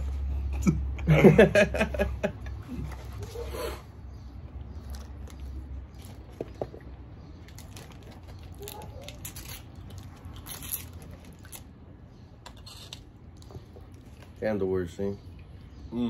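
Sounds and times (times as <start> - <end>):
wrapper crinkling: 7.5 - 11.7.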